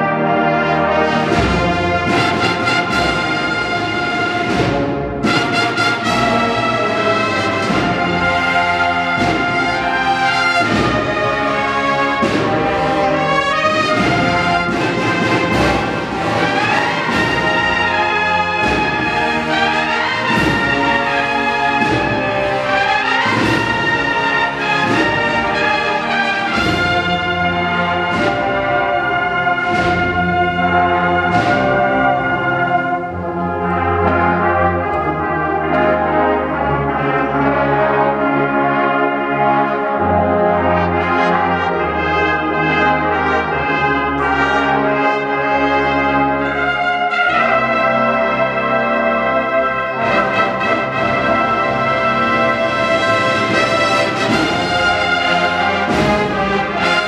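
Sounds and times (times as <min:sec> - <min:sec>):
brass band playing a march: 0:00.0 - 0:57.0
drum strokes: 0:01.2 - 0:33.4, 0:52.8 - 0:57.0.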